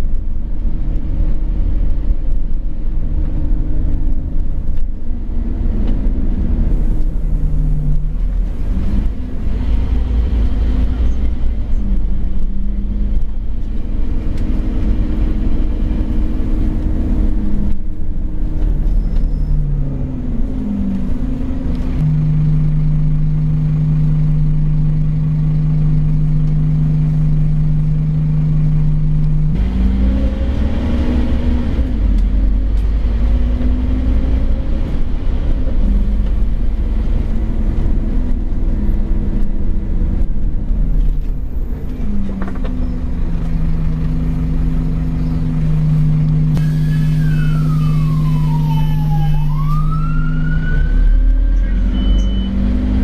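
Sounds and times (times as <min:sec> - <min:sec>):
bus diesel engine rumbling: 0:00.0 - 0:53.0.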